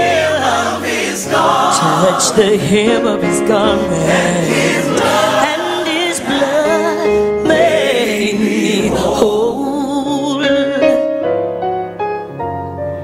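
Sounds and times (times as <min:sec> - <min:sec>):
gospel choir singing: 0:00.0 - 0:10.9
keyboard accompaniment: 0:00.0 - 0:13.0
male lead singer: 0:01.7 - 0:07.6.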